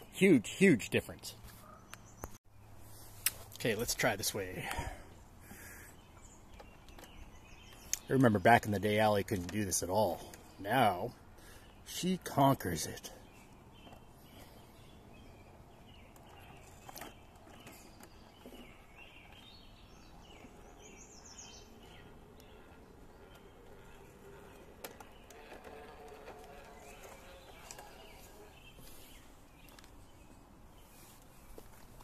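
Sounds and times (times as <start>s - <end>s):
small birds chirping: 0.0s - 32.0s
faint clicks and knocks: 21.7s - 28.4s.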